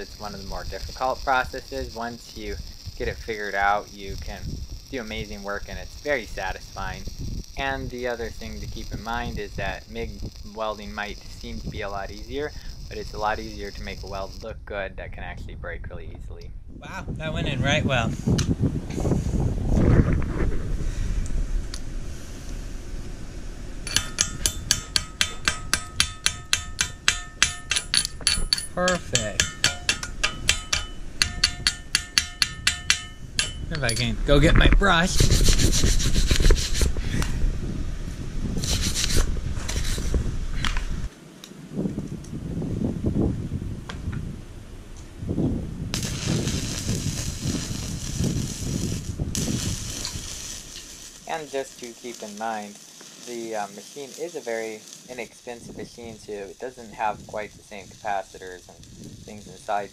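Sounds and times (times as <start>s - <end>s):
welding arc crackling: 0.0s - 14.7s, 18.2s - 42.4s, 45.8s - 59.9s
low rumbling noise: 0.0s - 41.1s, 41.7s - 52.7s
chipping hammer tapping metal: 23.9s - 34.2s.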